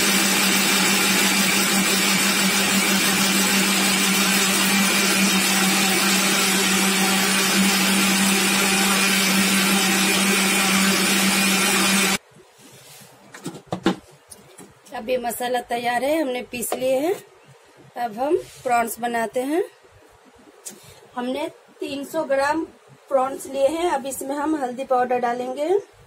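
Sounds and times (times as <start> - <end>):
mixer grinder motor whirring: 0.0 - 12.2.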